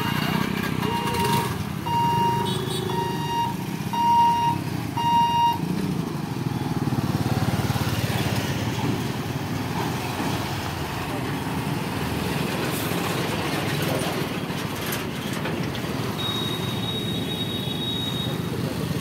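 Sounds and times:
electronic warning beeper: 0.0s - 5.6s, 16.2s - 18.4s
motorcycle engine: 0.0s - 11.7s
truck engine: 0.0s - 19.0s.

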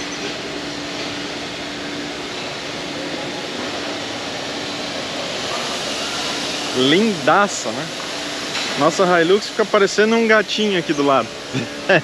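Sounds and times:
steady mechanical hum: 0.0s - 12.0s
even rushing hiss: 3.0s - 12.0s.

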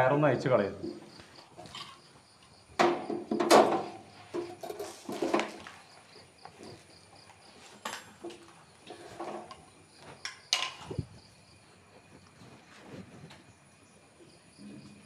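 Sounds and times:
crickets chirping: 0.0s - 15.0s
metal door knocks and clinks: 2.8s - 5.6s.

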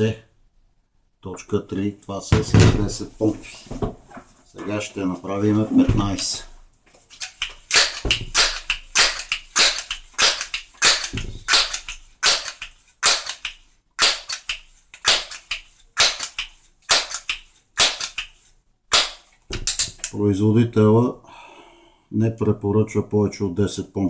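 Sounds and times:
air pistol pump strokes: 7.1s - 20.1s.

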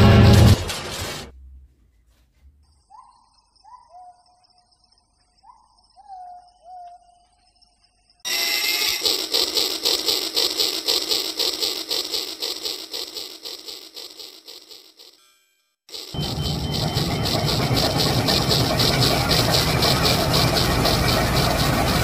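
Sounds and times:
toy train clattering on track: 8.3s - 15.2s, 15.9s - 22.0s.

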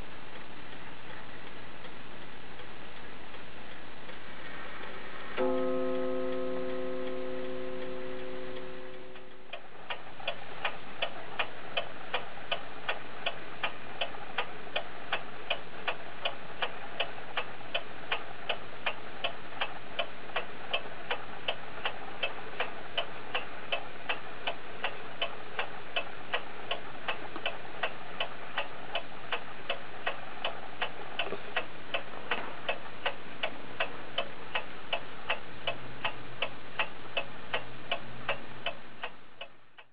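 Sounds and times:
clock ticking: 0.3s - 39.9s.

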